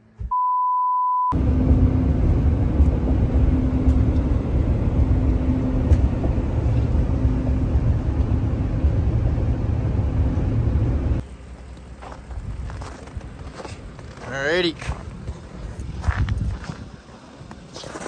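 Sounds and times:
test-tone beep: 0.3 - 1.4
vehicle road and engine rumble: 1.3 - 18.0.

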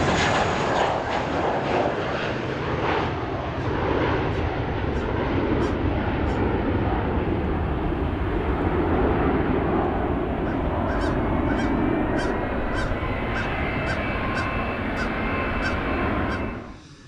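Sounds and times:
jet engine rumble: 0.0 - 17.0
bird calling: 10.4 - 16.7.

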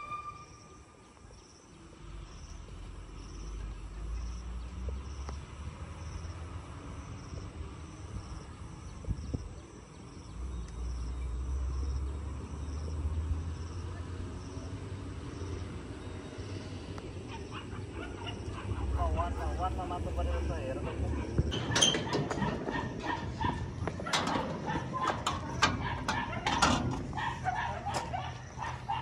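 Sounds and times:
insect chirping: 0.0 - 8.5.

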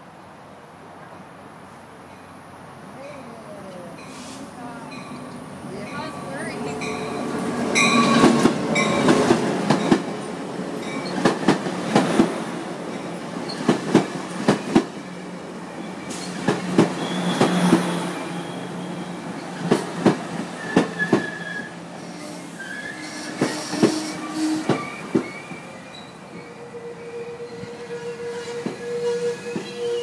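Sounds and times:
wheels squealing: 16.0 - 19.8, 20.6 - 30.0.

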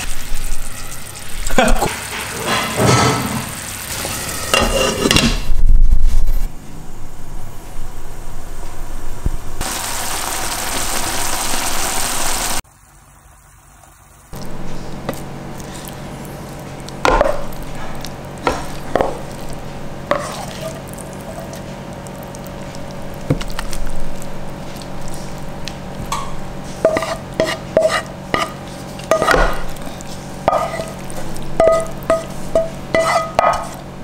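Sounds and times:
utensil clinking against a dish: 30.4 - 33.8.

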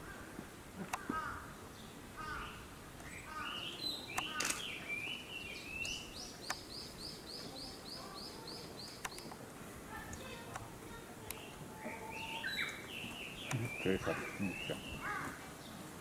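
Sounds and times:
small birds chirping: 0.0 - 16.0
sharp clicks: 4.1 - 4.7, 5.8 - 6.7, 8.9 - 9.4, 10.1 - 11.4, 13.4 - 13.8.

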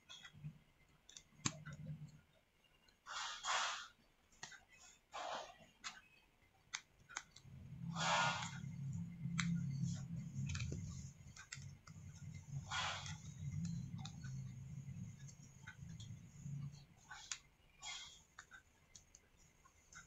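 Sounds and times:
small clicks and taps: 0.0 - 3.0, 4.3 - 7.6, 8.4 - 20.0
low hum: 7.0 - 20.0.

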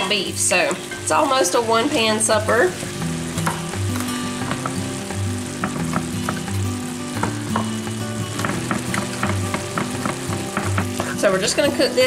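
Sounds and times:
meat sizzling in a skillet: 0.0 - 12.0
background music with bass line: 2.9 - 11.2
knife tapping on cutting board: 5.6 - 6.5, 7.2 - 7.8, 8.4 - 11.2.

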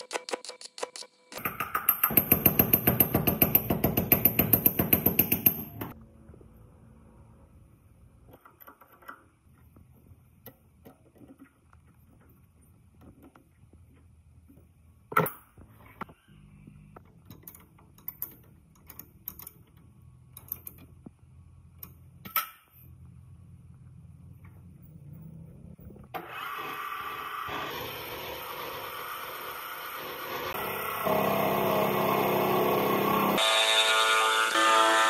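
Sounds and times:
metallic clicks and knocks: 17.0 - 21.1.

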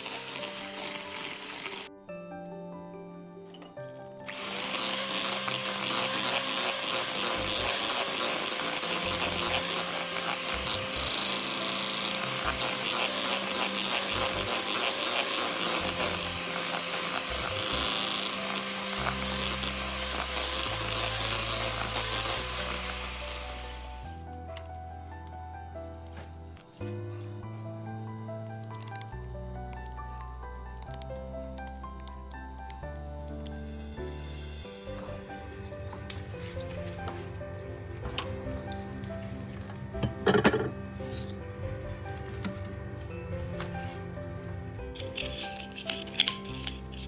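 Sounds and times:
electric hand mixer whining: 0.0 - 1.9, 4.3 - 24.2
background music: 0.0 - 47.0.

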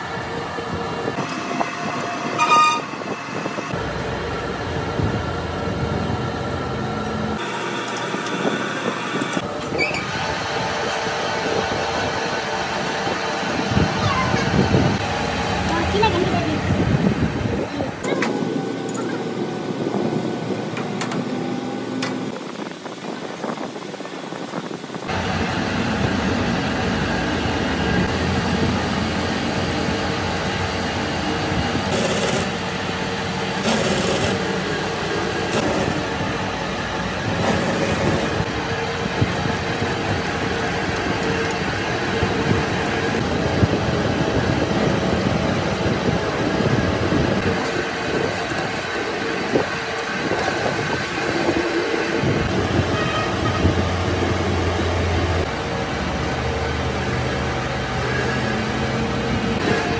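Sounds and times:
metal lathe humming: 1.1 - 4.3, 6.9 - 13.7
cutting tool scraping metal: 2.3 - 3.1.

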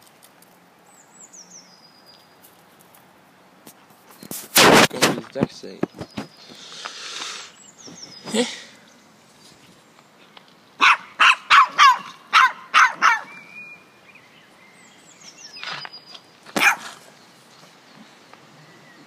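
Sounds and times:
dog barking: 10.8 - 13.3, 16.6 - 17.0.

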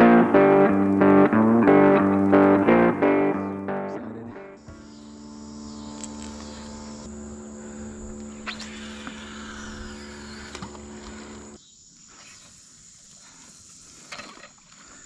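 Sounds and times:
boat motor running: 4.5 - 11.6
faint insects chirping: 4.6 - 15.0.

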